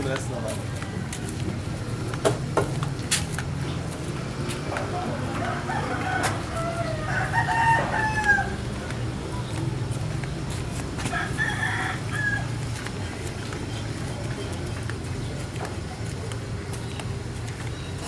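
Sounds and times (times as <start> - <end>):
rooster crowing: 5.0 - 8.6, 11.1 - 12.5.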